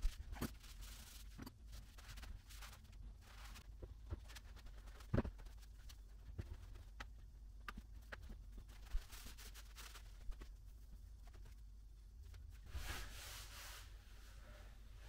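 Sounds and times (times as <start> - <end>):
cloth rubbing over tiles: 12.5 - 14.5.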